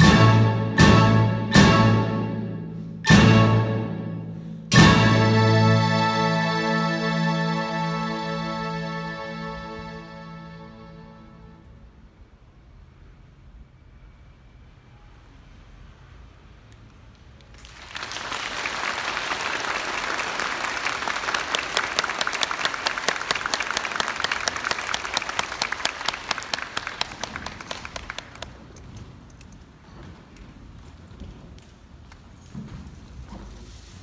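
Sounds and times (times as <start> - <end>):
audience applauding: 17.5 - 28.8.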